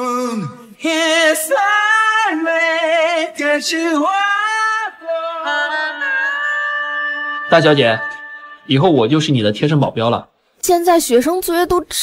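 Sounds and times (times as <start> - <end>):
person singing with vibrato: 0.0 - 8.7.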